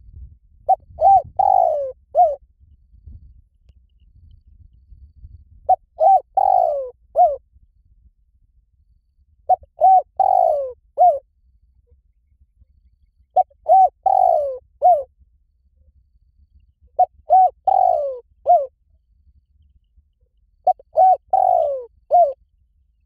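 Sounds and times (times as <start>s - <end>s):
dove cooing: 0.7s - 2.4s, 5.7s - 7.4s, 9.5s - 11.2s, 13.4s - 15.1s, 17.0s - 18.7s, 20.6s - 22.4s.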